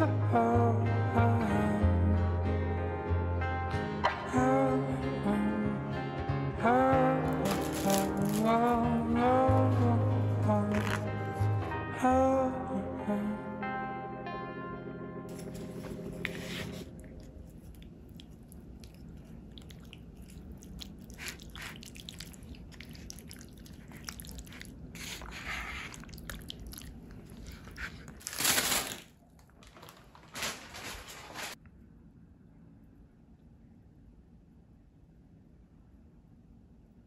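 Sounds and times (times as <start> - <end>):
background music: 0.0 - 17.3
wet squelching with clicks: 17.0 - 24.9.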